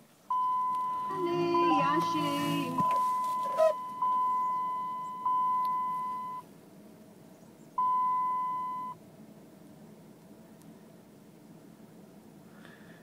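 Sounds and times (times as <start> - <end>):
dashboard warning chime: 0.3 - 6.4, 7.8 - 9.0.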